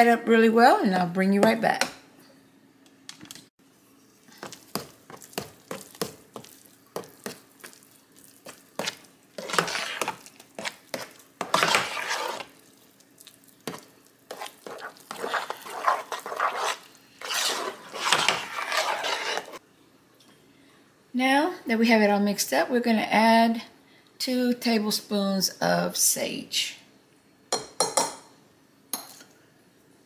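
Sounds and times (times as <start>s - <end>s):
spoon scraping wet mixture: 4.2s - 19.6s.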